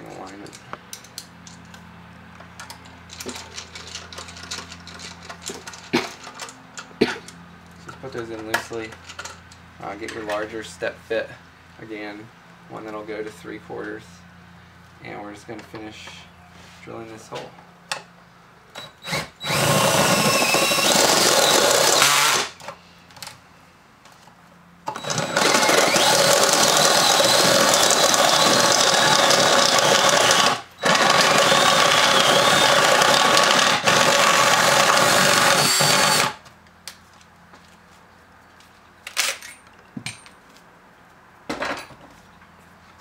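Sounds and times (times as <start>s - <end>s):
drill cutting through metal: 18.8s - 22.6s, 24.9s - 36.4s
high wavering drill whine: 18.8s - 22.6s, 24.9s - 36.4s.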